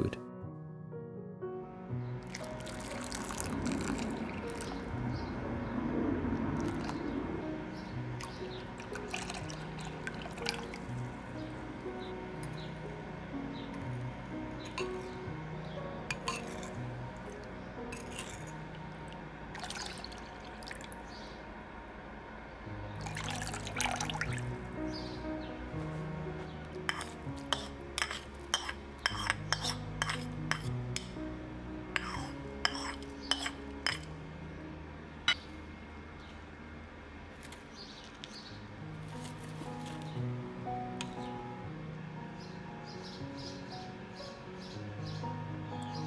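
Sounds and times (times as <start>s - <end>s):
soft background music: 0.0s - 46.0s
liquid pouring into a ceramic bowl: 2.3s - 4.9s, 6.5s - 7.0s, 8.2s - 11.3s, 16.1s - 18.6s, 19.5s - 21.0s, 23.0s - 24.5s, 32.0s - 34.1s
spoon clinking on a bowl: 16.1s - 16.8s, 17.9s - 18.5s, 26.9s - 30.7s, 32.0s - 34.1s.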